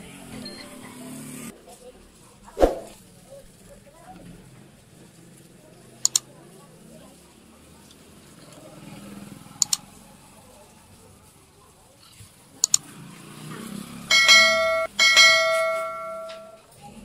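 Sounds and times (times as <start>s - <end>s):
bell dings: 14.1s - 16.6s.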